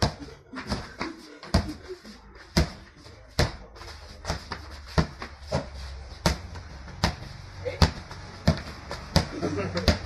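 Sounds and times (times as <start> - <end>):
basketball bouncing on hard court: 7.8 - 10.0.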